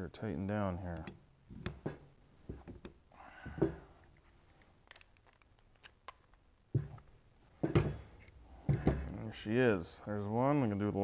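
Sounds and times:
metal clink: 7.7 - 8.3.

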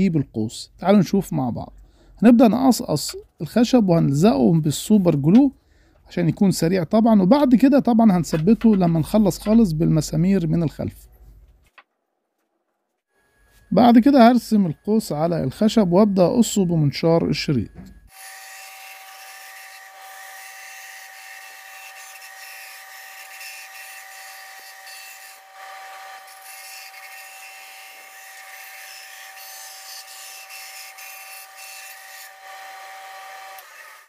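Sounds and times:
band saw cutting wood: 6.2 - 11.0, 13.2 - 34.0.

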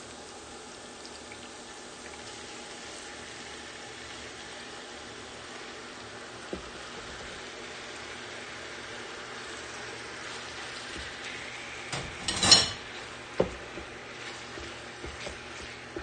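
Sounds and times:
chicken sizzling in a pan: 0.0 - 16.0
spatula pushing food: 10.1 - 16.0.

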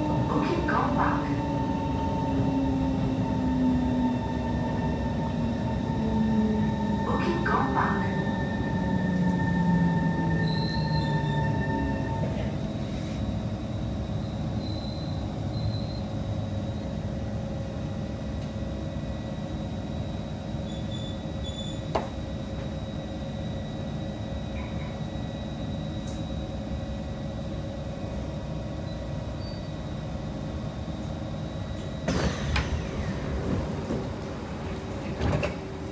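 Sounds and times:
train hum: 0.0 - 35.9
train whine: 0.0 - 35.9
train doors sliding open: 31.6 - 35.9.

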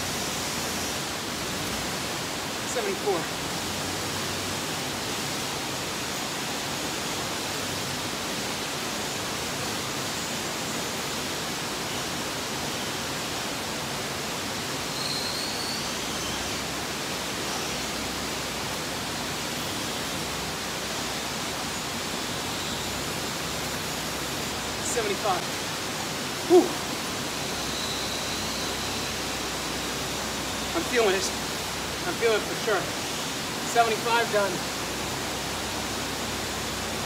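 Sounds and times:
steady rushing noise: 18.0 - 37.0
faint chirp: 26.5 - 30.7.

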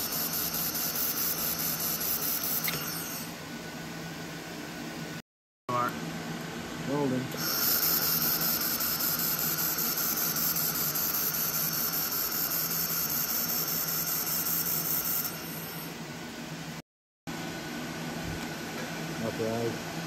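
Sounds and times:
laser welder hissing with spatter: 0.0 - 3.4, 7.3 - 16.0.

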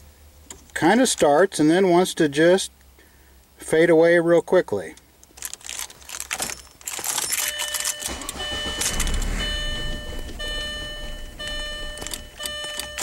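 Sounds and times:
keys jingling: 5.4 - 13.0
electronic beep: 7.4 - 13.0
car engine starting and running rough: 7.6 - 13.0.

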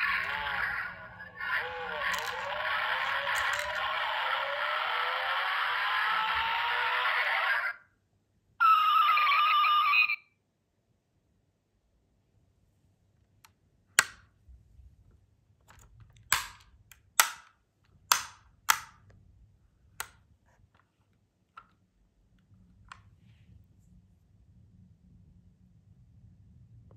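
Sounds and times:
toy car doors clicking shut: 1.6 - 5.0, 14.0 - 14.2, 15.7 - 17.5, 18.1 - 19.0.

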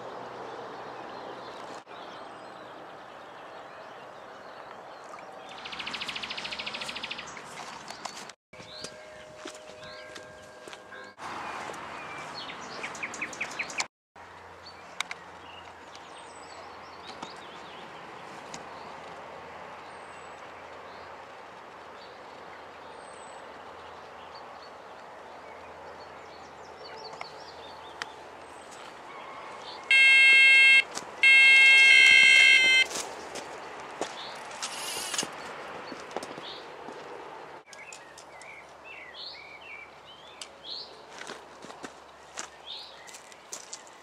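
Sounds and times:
small birds chirping: 11.6 - 13.9
bite alarm electronic tone: 29.9 - 32.9
quick beeps: 29.9 - 32.9.

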